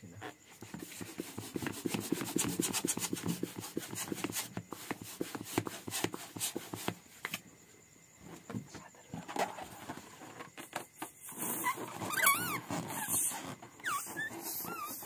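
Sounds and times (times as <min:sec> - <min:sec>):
rubber balloon being rubbed: 0:00.2 - 0:07.0, 0:11.2 - 0:15.0.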